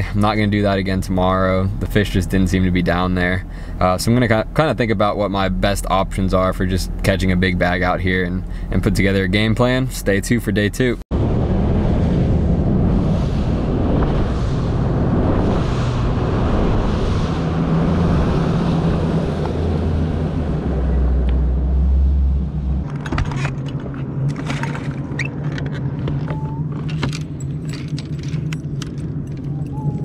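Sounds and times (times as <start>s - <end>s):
water rushing past hull: 11.1s - 22.8s
wind rushing: 11.1s - 22.9s
fishing rods and reels clattering: 22.8s - 30.0s.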